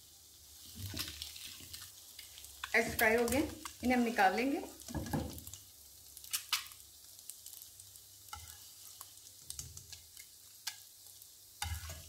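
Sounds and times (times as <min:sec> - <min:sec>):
egg sizzling in oil: 0:00.0 - 0:12.0
spatula scraping pan: 0:11.6 - 0:12.0.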